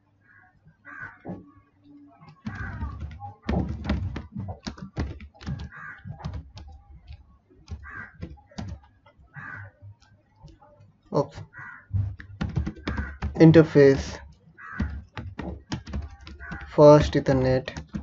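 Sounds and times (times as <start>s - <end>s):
keyboard key clicks: 2.4s - 8.9s, 12.1s - 14.1s, 14.7s - 18.0s
dull thumps: 2.4s - 10.1s, 11.3s - 18.0s.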